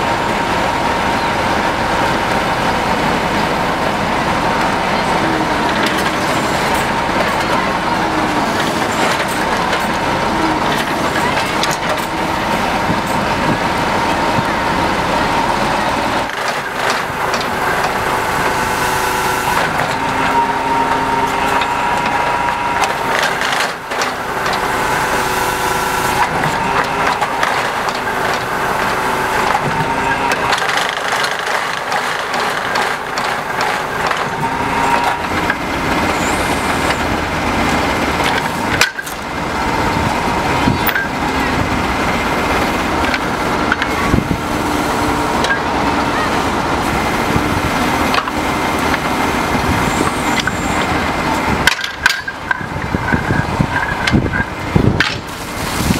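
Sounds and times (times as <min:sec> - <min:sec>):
drilling rig engine din: 0:00.0 - 0:55.9
knocks and clanks from rig: 0:26.2 - 0:36.2, 0:51.6 - 0:55.3.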